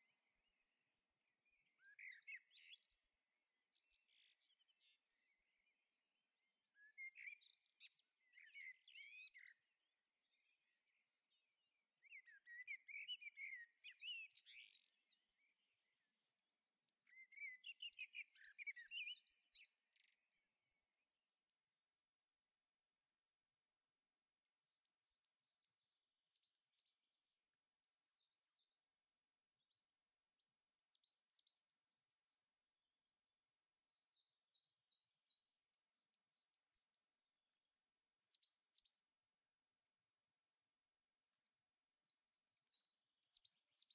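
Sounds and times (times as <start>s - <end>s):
bird warbling song: 1.4s - 5.0s, 6.4s - 20.4s, 38.2s - 39.1s, 41.4s - 43.9s.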